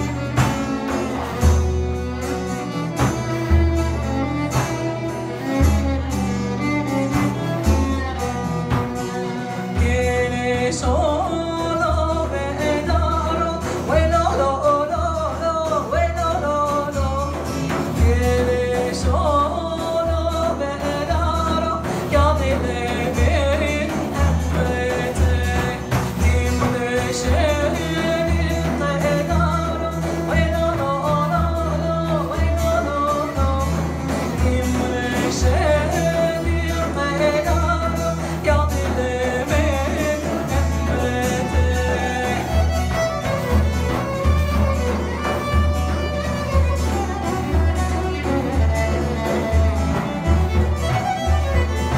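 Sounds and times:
frame drums beat: 0.0 - 51.9
long-necked lute playing: 0.0 - 51.9
woman singing: 9.8 - 43.4.

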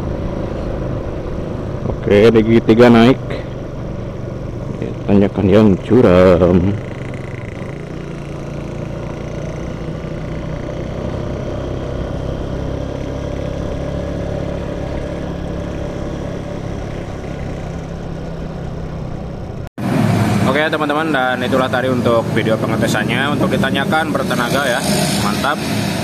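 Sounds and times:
motorcycle engine pulling under load: 2.8 - 19.7.

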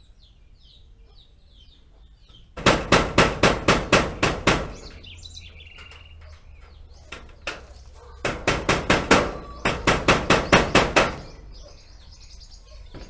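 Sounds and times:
hammer striking roof sheet: 2.6 - 5.1, 7.2 - 11.4.

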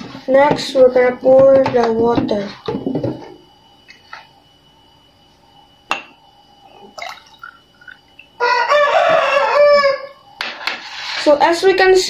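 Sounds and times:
glassware knocking: 5.9 - 6.1
water pouring into glass: 6.8 - 8.1
rooster crowing: 8.3 - 10.3.

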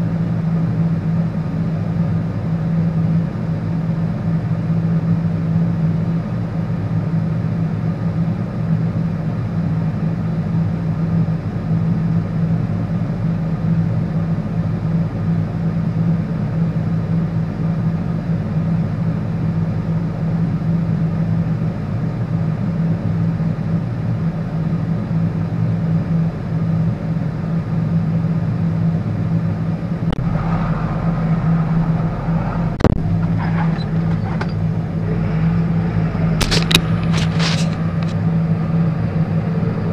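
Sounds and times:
tractor engine drone: 0.0 - 39.9
sharp click: 36.4 - 38.2.

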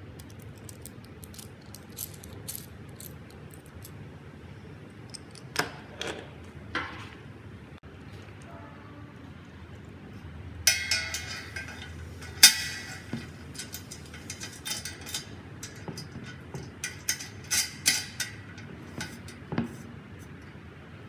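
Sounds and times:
metal clamp clinking on tube: 10.7 - 19.4.

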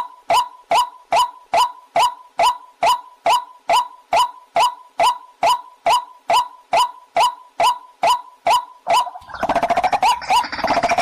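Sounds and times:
harsh croaking bird calls: 8.9 - 11.0.

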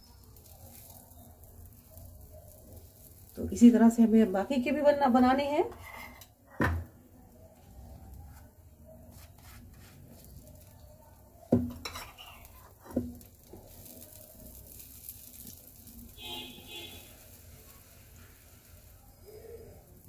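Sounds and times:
buns scraping on pan: 5.6 - 6.4, 7.6 - 10.8, 11.7 - 18.9.

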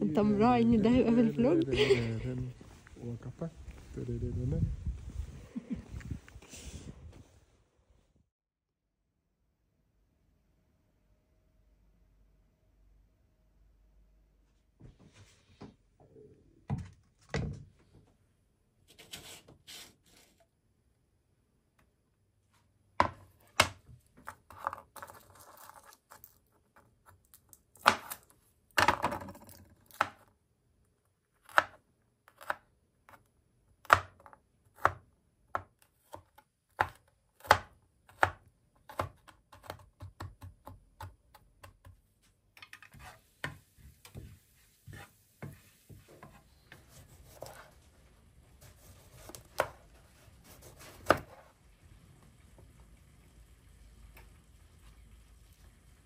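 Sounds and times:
knife chopping on plastic board: 33.8 - 42.0, 50.5 - 51.4
knife slicing cucumber: 48.6 - 51.4.

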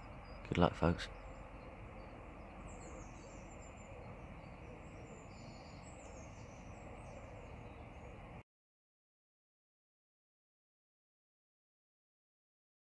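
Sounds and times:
birds chirping and trilling: 0.0 - 8.4
steady background hiss: 0.0 - 8.4.

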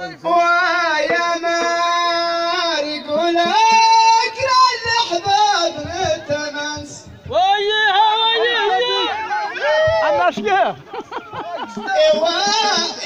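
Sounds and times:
person singing into microphone: 0.0 - 9.2, 11.8 - 13.0.

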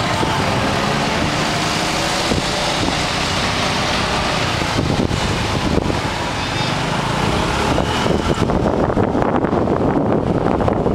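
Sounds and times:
wind on microphone: 0.0 - 10.9.

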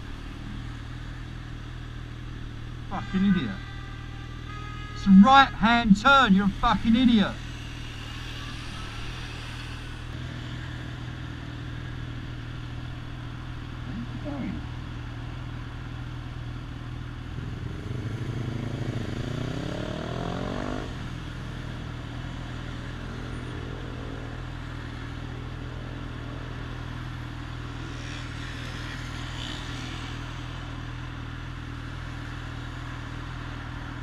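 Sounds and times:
traffic noise: 0.0 - 34.0
vehicle accelerating: 17.3 - 24.3.

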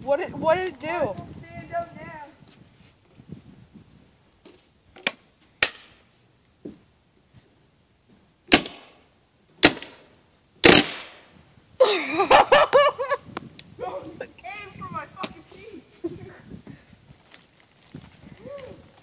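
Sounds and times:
person calling out: 13.8 - 16.4, 18.4 - 18.9.

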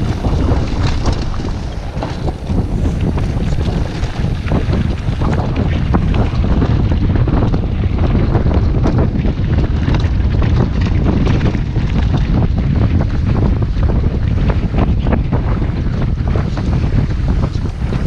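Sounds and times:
tyres rattling over stones: 0.0 - 7.2
constant rumble: 0.0 - 18.0
wind buffeting microphone: 0.0 - 18.0.

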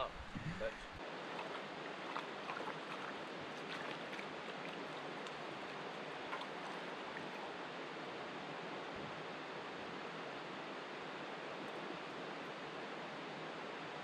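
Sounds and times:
river flowing: 0.0 - 14.0.

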